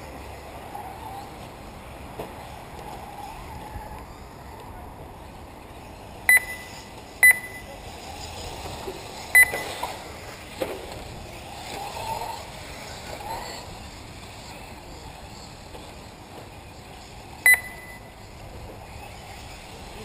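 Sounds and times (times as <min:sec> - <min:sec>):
low uneven background noise: 0:00.0 - 0:20.0
high electronic beeps: 0:06.3 - 0:07.7, 0:09.4 - 0:09.9, 0:17.4 - 0:18.2.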